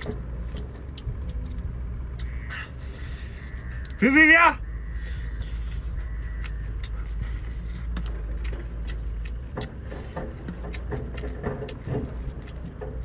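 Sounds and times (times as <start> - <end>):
wet chewing and lip smacks: 0.0 - 4.0, 4.9 - 13.0
low rumble: 4.6 - 13.0.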